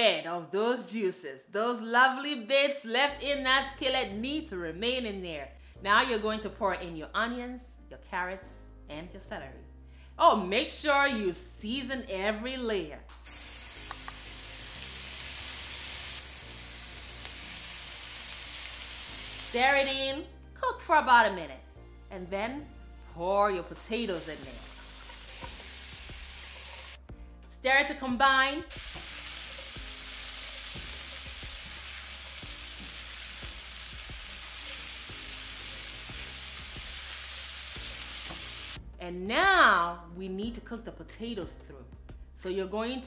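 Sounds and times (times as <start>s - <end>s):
vegetables sizzling in a skillet: 13.2s - 20.0s, 23.0s - 27.0s, 28.7s - 38.8s
spatula scraping and tapping pan: 24.6s - 27.0s.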